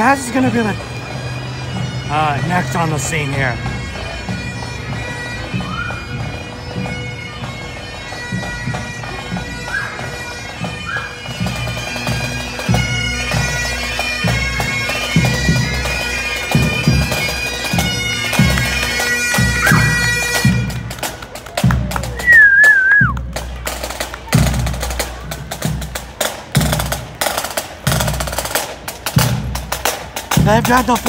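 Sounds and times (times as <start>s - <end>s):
bagpipes playing a march: 0.0s - 31.0s.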